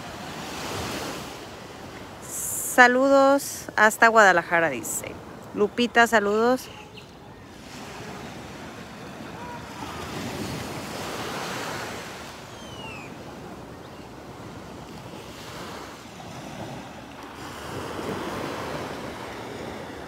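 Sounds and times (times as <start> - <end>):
waves breaking on a beach: 0.0 - 20.0
faint falling whistle: 12.5 - 13.1.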